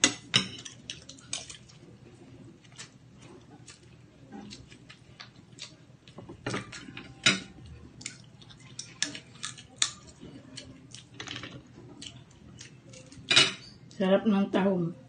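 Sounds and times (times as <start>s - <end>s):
cutlery clinking against plates: 0.0s - 1.6s, 6.4s - 7.6s, 13.0s - 13.8s.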